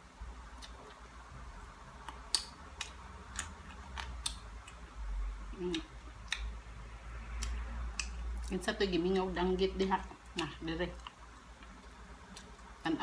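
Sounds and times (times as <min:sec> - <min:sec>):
steady low hum: 0:00.0 - 0:13.0
person chewing food: 0:00.4 - 0:06.6, 0:07.3 - 0:09.3, 0:10.3 - 0:12.8
mouth clicks and smacks: 0:02.0 - 0:04.8, 0:05.5 - 0:06.6, 0:07.3 - 0:08.5.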